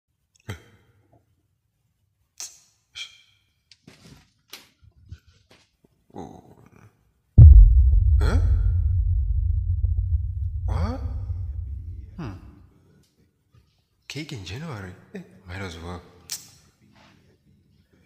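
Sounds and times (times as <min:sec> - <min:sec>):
loud low rumble: 0:07.4 - 0:12.2.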